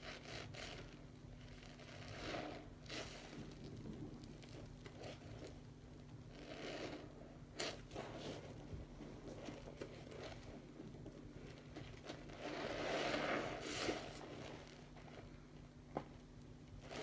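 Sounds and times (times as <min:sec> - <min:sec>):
sponge squishing in soapy water: 0:00.0 - 0:17.0.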